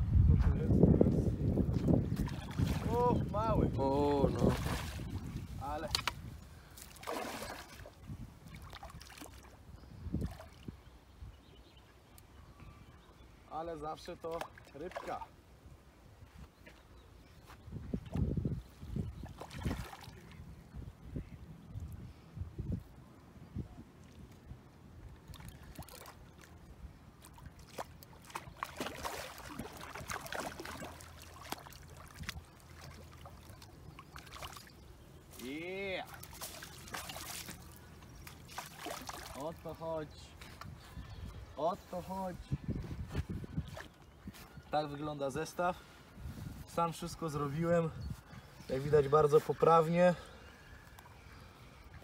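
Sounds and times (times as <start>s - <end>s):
water splashing and sloshing: 1.5s - 10.9s, 14.0s - 15.6s, 19.0s - 20.7s, 23.9s - 42.1s, 42.8s - 44.6s.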